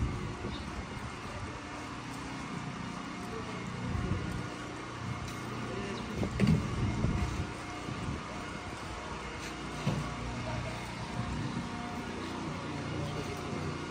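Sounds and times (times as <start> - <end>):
low rumble of background noise: 0.0 - 13.9.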